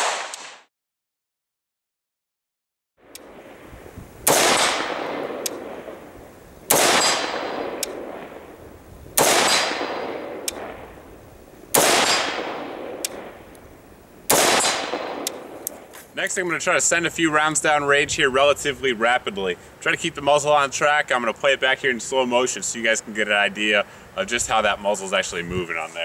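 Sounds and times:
rifle shots with echo: 0:00.0 - 0:00.6, 0:04.2 - 0:08.6, 0:09.2 - 0:11.0, 0:11.7 - 0:13.5, 0:14.3 - 0:15.9.

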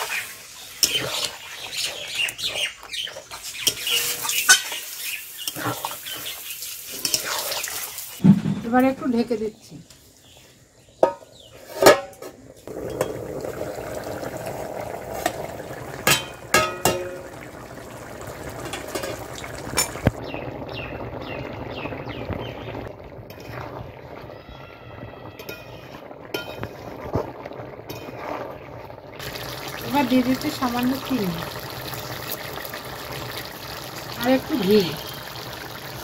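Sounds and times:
metal spatula stirring: 0:00.0 - 0:08.0, 0:25.4 - 0:26.8, 0:27.9 - 0:28.4
curry bubbling: 0:00.0 - 0:08.2, 0:12.3 - 0:36.0
metal lid clanking onto pan: 0:16.0 - 0:17.2.

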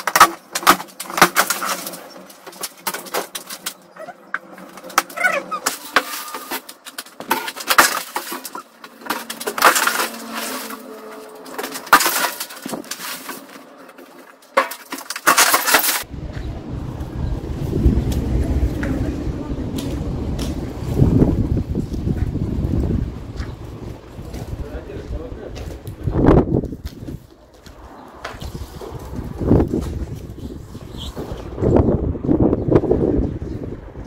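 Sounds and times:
cracking and knocking of boards: 0:00.0 - 0:16.1
falling debris: 0:00.0 - 0:16.8
birds chirping: 0:16.1 - 0:26.0, 0:27.3 - 0:29.6, 0:30.3 - 0:34.0.

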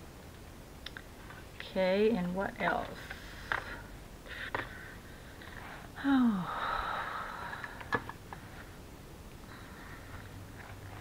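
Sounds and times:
person sighing: 0:06.0 - 0:07.8.

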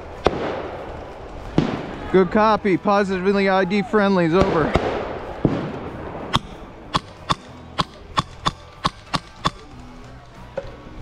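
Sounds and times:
airsoft gun shots cracking: 0:04.4 - 0:09.8.

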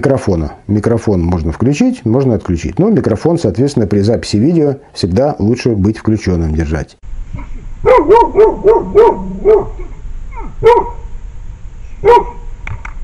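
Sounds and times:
dog barking: 0:07.8 - 0:11.1, 0:12.0 - 0:12.4.

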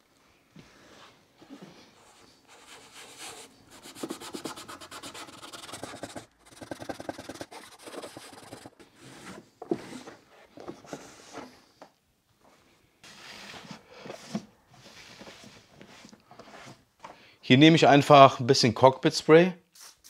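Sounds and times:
cloth rubbing on plastic: 0:02.1 - 0:08.8.

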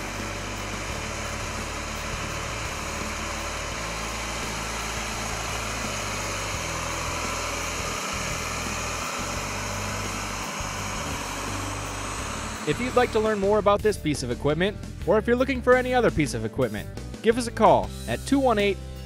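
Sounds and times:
tractor diesel engine driving past: 0:00.0 - 0:14.4.

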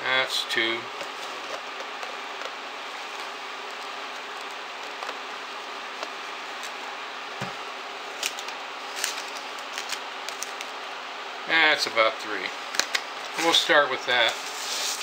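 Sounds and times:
steady background hum: 0:00.0 - 0:15.0.

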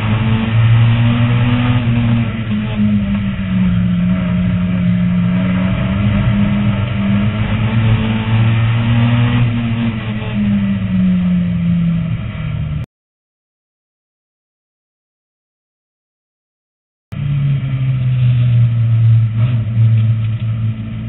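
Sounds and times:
race car engine revving: 0:00.0 - 0:12.8, 0:17.2 - 0:21.0
road and wind noise: 0:00.0 - 0:12.9, 0:17.1 - 0:21.0.

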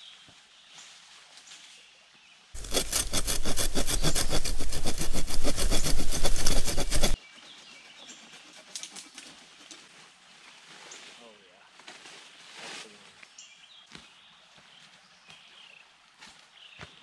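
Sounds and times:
knife sawing through sapling: 0:02.6 - 0:09.6.

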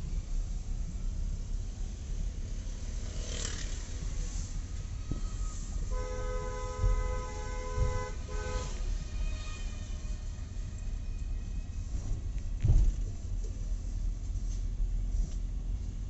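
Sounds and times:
low rumble of moving car: 0:00.0 - 0:16.0
car horn honking: 0:05.4 - 0:11.8.

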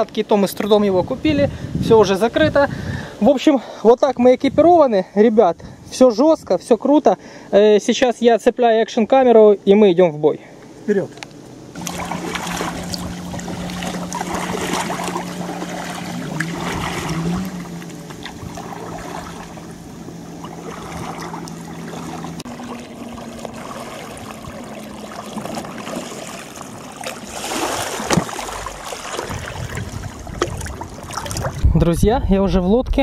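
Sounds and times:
steady low hum: 0:09.6 - 0:33.0
kayak paddles splashing: 0:11.0 - 0:31.6
water washing along hull: 0:11.1 - 0:31.8.

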